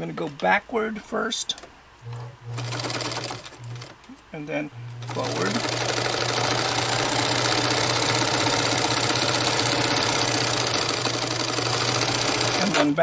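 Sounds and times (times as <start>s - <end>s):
sewing machine running: 2.1s - 4.0s, 4.9s - 13.0s.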